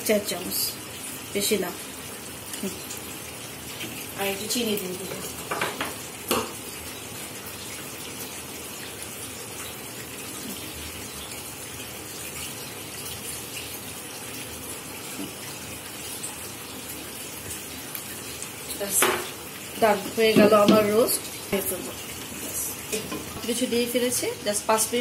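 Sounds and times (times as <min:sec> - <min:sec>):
chicken roast sizzling: 0:01.9 - 0:12.0.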